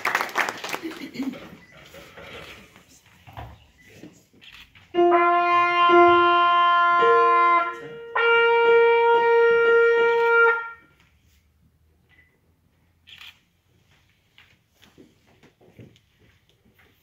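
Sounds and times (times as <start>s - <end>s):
trumpet playing long notes: 4.9s - 10.9s.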